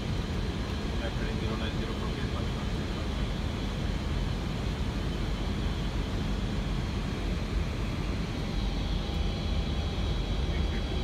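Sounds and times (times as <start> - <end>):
cockpit engine and airflow rumble: 0.0 - 11.0.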